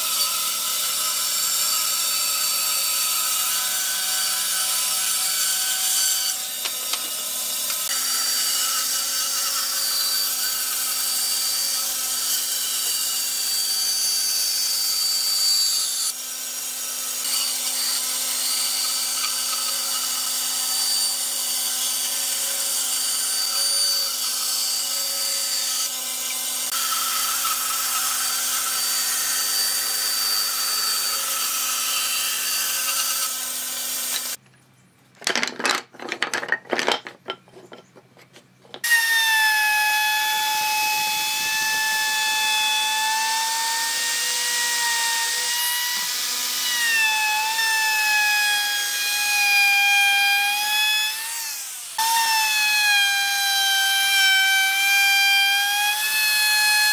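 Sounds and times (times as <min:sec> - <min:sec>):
band saw cutting wood: 0:00.0 - 0:34.4, 0:38.8 - 0:56.9
electric router whining: 0:38.8 - 0:56.9.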